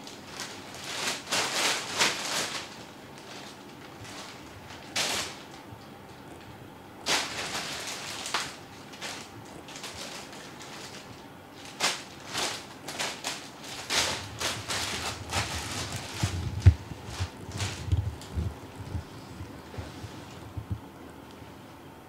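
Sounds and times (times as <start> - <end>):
plastic bag crinkling: 0.0 - 20.6
dull low thumps: 15.2 - 20.9.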